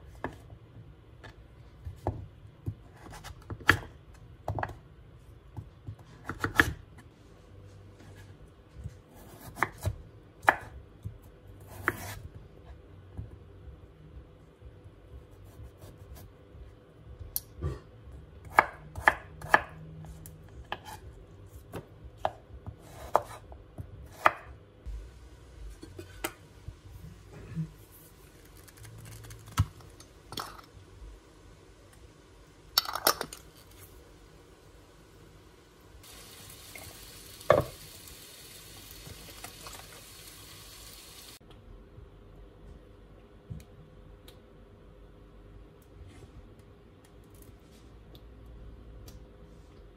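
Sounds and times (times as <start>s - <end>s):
knife chopping on wooden board: 21.7s - 24.5s.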